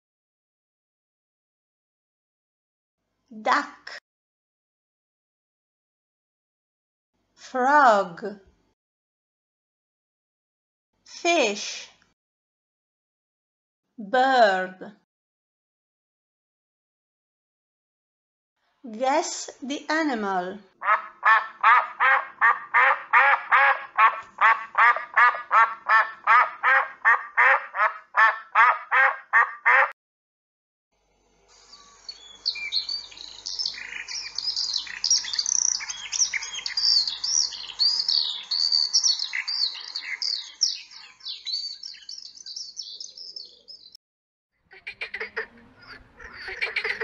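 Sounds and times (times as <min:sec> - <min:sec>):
duck quacking: 0:20.8 - 0:29.9, 0:44.7 - 0:47.0
songbird chirping: 0:31.6 - 0:44.0
frogs croaking: 0:32.5 - 0:43.6.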